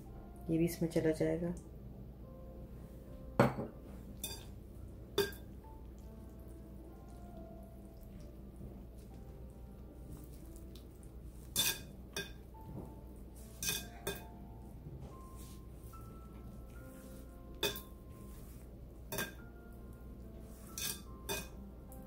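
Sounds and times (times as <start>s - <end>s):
faint background music: 0.0s - 22.0s
glass bowl clinking: 3.4s - 4.5s, 5.1s - 5.5s, 11.6s - 12.5s, 13.5s - 14.4s, 17.5s - 18.0s, 19.1s - 19.5s, 20.7s - 21.6s.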